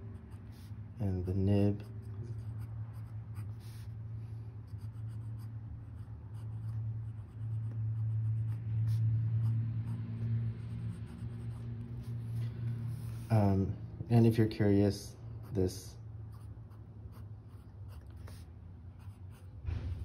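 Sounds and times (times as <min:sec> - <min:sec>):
steady low hum: 0:00.0 - 0:20.0
fountain pen scratching on paper: 0:00.2 - 0:03.9, 0:04.7 - 0:10.0, 0:16.3 - 0:19.5.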